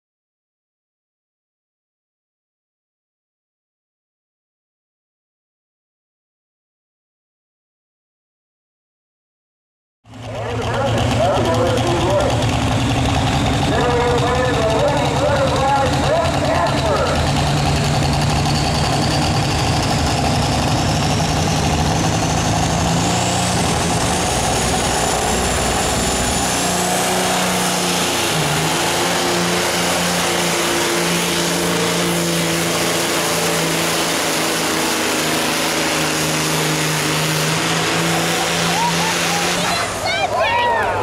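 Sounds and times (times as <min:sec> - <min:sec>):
truck diesel engine under load: 0:10.1 - 0:41.0
high rising whine: 0:13.1 - 0:39.7.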